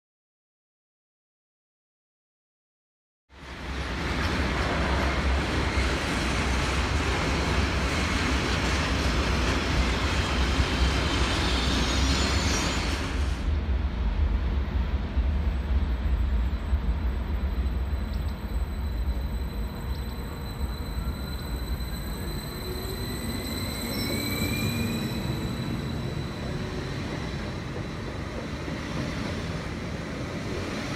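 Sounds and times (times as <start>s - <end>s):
train wheels rumbling and hissing: 3.4s - 30.9s
faint high squeal: 11.3s - 13.2s, 16.1s - 28.2s.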